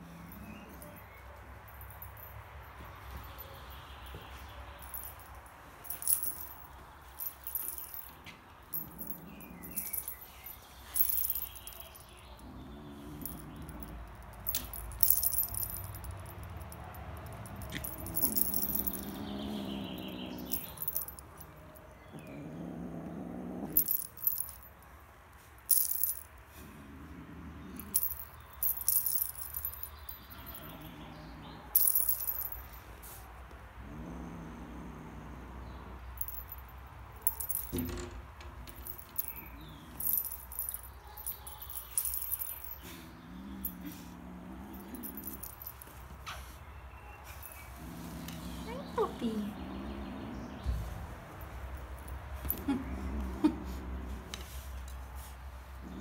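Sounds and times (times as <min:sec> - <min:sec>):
jingle bell jingling: 0:00.0 - 0:21.7, 0:23.7 - 0:24.8, 0:25.7 - 0:26.3, 0:27.8 - 0:31.0, 0:31.7 - 0:32.9, 0:36.2 - 0:38.1, 0:38.7 - 0:46.2.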